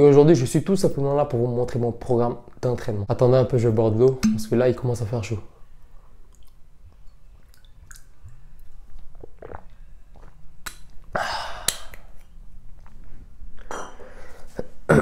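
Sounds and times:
man gulping water: 0:07.4 - 0:12.0.

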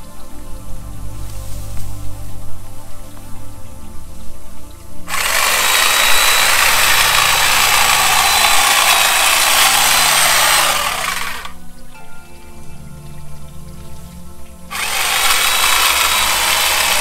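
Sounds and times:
electric hedge trimmer running: 0:05.1 - 0:11.6, 0:14.7 - 0:17.0.

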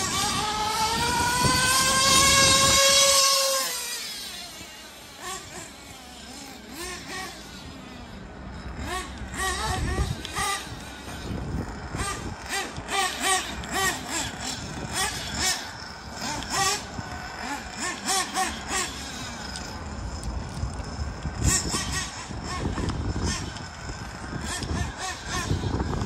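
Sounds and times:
model car engine buzzing: 0:00.0 - 0:26.0.

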